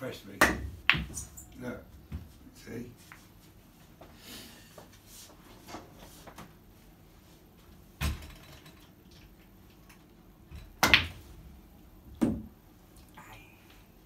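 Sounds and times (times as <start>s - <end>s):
pool balls colliding: 0.4s - 1.3s, 10.6s - 11.4s, 12.0s - 12.6s.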